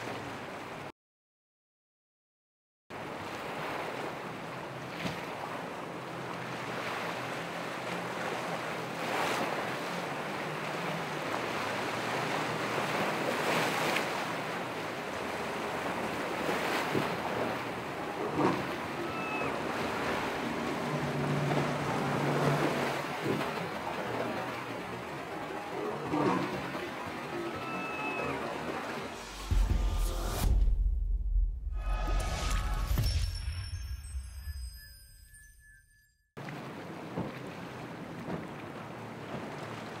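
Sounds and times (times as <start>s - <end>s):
boat engines humming: 0.0s - 0.9s, 3.0s - 30.4s, 33.3s - 40.0s
ocean surf breaking: 3.0s - 30.6s, 36.4s - 40.0s
wave crashes: 28.6s - 35.0s.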